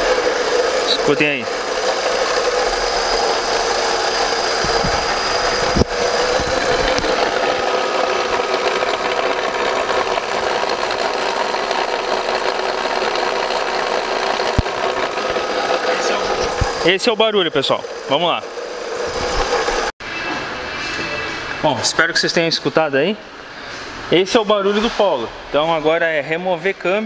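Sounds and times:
car engine running: 0:00.0 - 0:20.0.

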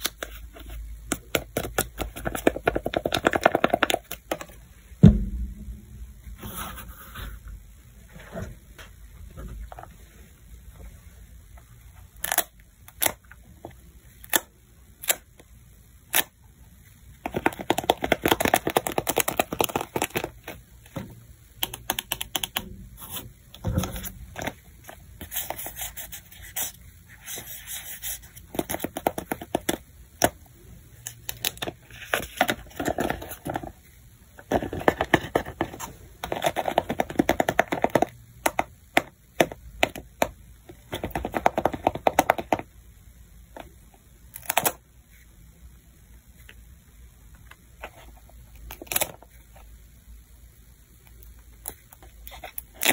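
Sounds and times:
paper clicks and taps: 0:34.6 - 0:40.3.

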